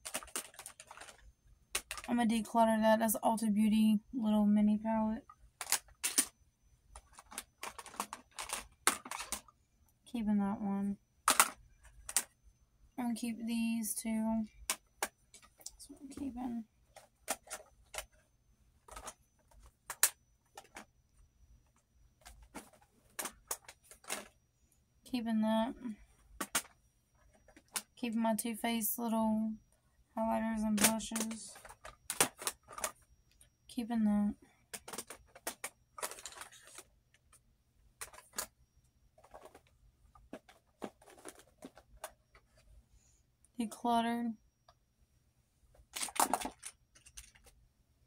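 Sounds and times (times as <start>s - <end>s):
plastic cases clicking: 0.0s - 2.1s, 5.6s - 6.3s, 7.0s - 9.5s, 11.3s - 12.3s, 16.9s - 18.2s, 18.9s - 20.9s, 22.2s - 24.4s, 26.4s - 26.7s, 30.8s - 33.0s, 34.7s - 36.9s, 38.0s - 38.5s, 39.2s - 42.6s, 45.9s - 47.5s
makeup compacts clicking and tapping: 30.8s - 32.9s, 34.7s - 36.8s.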